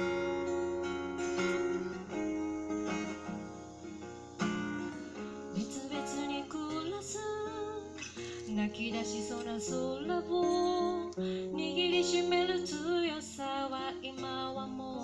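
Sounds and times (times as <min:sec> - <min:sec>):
acoustic guitar strummed and plucked: 0:00.0 - 0:15.0
woman singing with vibrato: 0:05.6 - 0:15.0.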